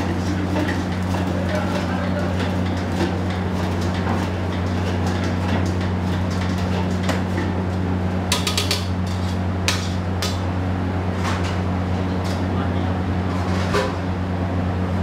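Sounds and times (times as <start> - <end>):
utensils clanking on steel pans: 0.0 - 7.7, 8.3 - 10.4
kitchen hum: 0.0 - 15.0.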